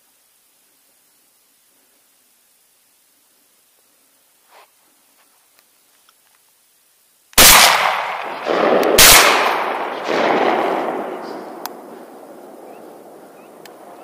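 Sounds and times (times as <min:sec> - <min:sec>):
rolling echo: 0:07.4 - 0:14.0
shotgun shots: 0:07.4 - 0:14.0.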